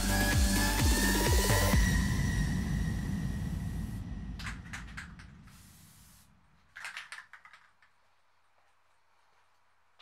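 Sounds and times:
aerosol can spraying: 5.3 - 6.3.

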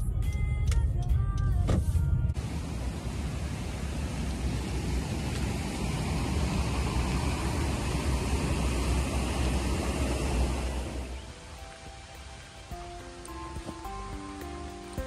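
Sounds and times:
rushing noise with deep rumble: 1.8 - 13.8.

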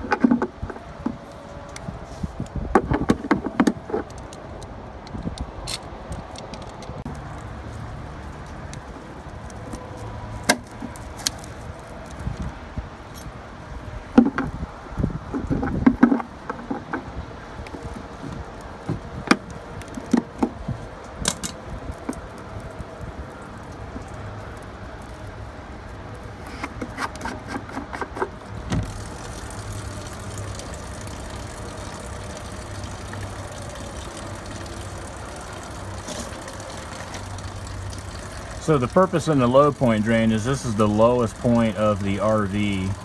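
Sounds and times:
water draining: 28.8 - 43.0.

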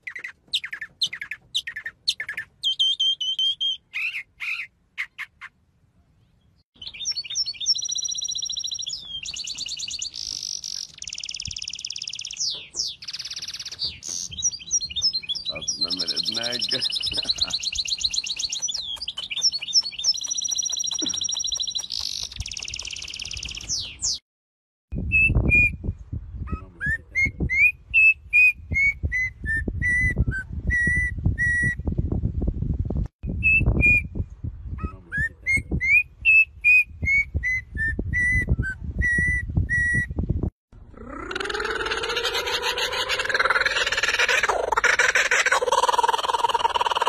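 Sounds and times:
bird whistling melodic song: 0.0 - 5.5, 6.8 - 24.2, 25.0 - 26.5, 27.2 - 31.8, 33.2 - 40.2
bird trills and chirps: 0.0 - 5.6, 6.2 - 24.2.

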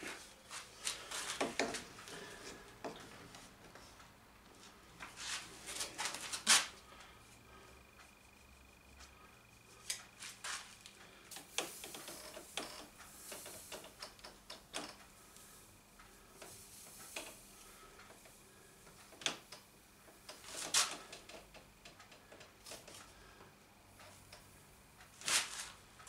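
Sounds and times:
wood clicking and tapping on metal: 0.8 - 3.9, 10.8 - 15.1, 16.4 - 24.6.

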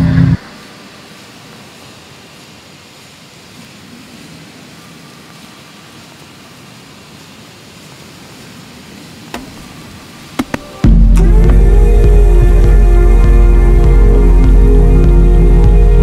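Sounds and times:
low rumble: 0.0 - 0.7, 10.8 - 16.0
even hiss: 0.0 - 16.0
knock: 9.4 - 9.6.

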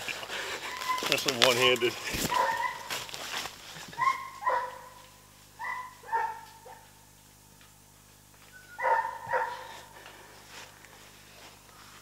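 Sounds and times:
dog barking: 2.3 - 2.9, 4.0 - 5.0, 5.6 - 6.9, 8.8 - 9.9.

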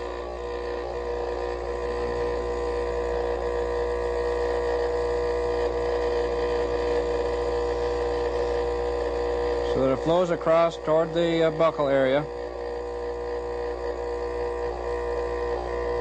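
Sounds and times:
vibrator buzzing: 0.0 - 16.0.

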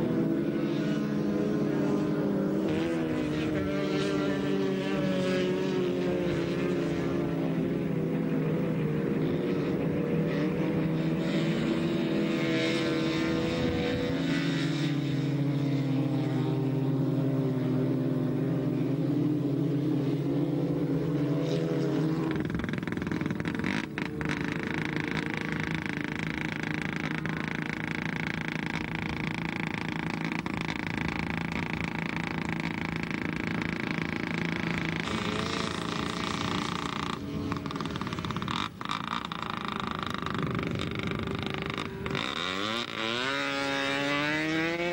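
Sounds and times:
racing car engines passing: 0.0 - 22.5.

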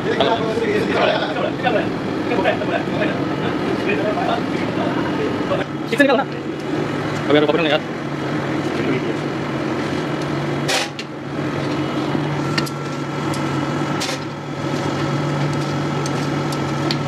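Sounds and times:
steady mechanical hum: 0.0 - 17.0.

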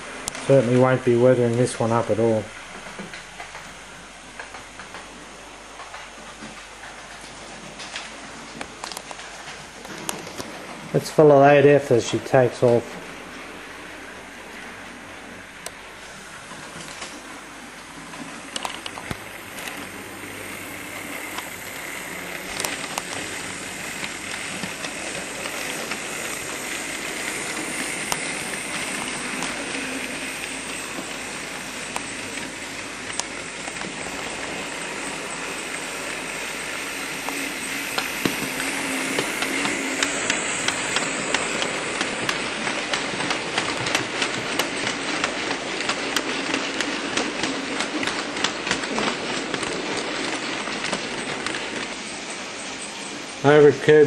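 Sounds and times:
wheels clicking over rail joints: 15.6 - 54.0
model train motor whirr: 18.0 - 54.0.

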